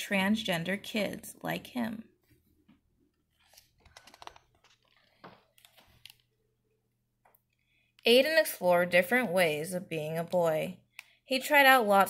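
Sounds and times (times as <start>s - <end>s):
book page turning: 3.2s - 6.3s.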